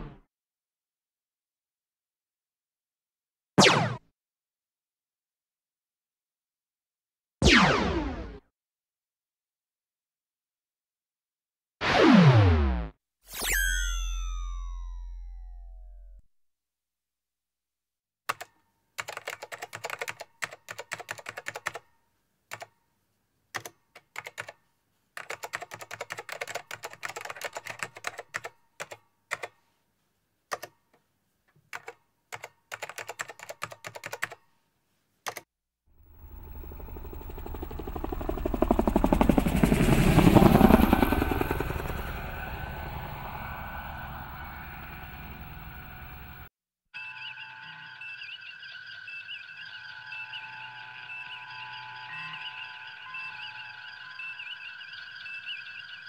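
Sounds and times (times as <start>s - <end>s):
computer keyboard typing: 18.3s - 21.9s, 22.5s - 22.8s, 23.5s - 24.6s, 25.2s - 29.6s, 31.7s - 34.4s
fast pulsing: 36.2s - 46.5s.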